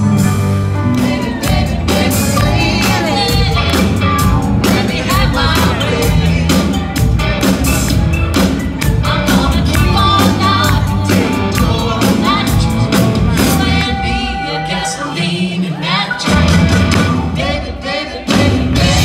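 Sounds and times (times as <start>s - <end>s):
electric guitar: 0.0s - 14.9s
bass guitar: 0.0s - 17.7s, 18.3s - 19.0s
steady drumbeat: 0.3s - 13.8s, 16.2s - 19.0s
woman singing into microphone: 9.1s - 12.8s.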